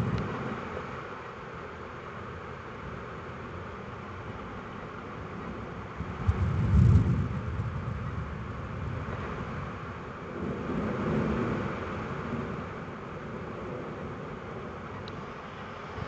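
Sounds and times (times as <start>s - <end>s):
thunder crack and rumble: 6.0s - 14.9s.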